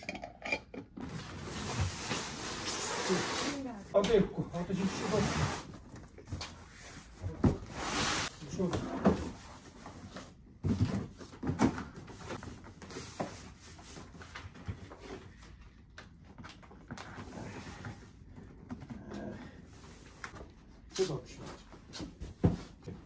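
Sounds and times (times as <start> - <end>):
cardboard boxes scraping and rustling: 6.7 - 10.3.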